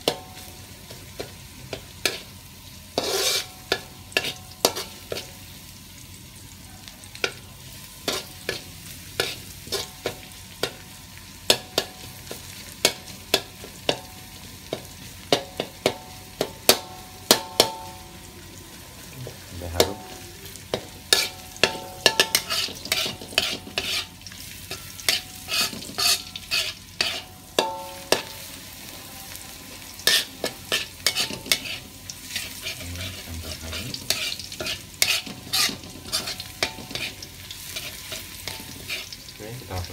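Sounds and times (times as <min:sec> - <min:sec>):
garlic sizzling in oil: 0:00.0 - 0:39.9
metal spatula scraping a wok: 0:02.9 - 0:05.4, 0:08.0 - 0:10.9, 0:20.7 - 0:39.2.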